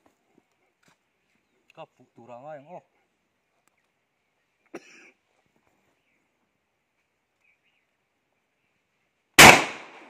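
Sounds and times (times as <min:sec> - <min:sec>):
faint bird chirps: 0:05.7 - 0:09.2.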